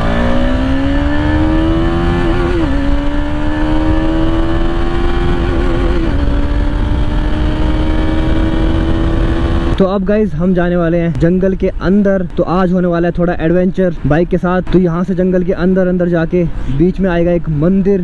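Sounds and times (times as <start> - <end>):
motorcycle engine accelerating: 0.0 - 9.8
wind noise: 0.0 - 15.0.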